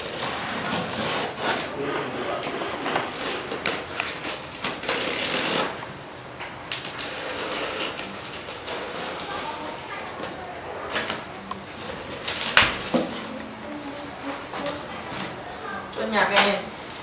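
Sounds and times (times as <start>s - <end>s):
box cutter slicing packing tape: 0.0s - 1.7s, 3.1s - 5.8s.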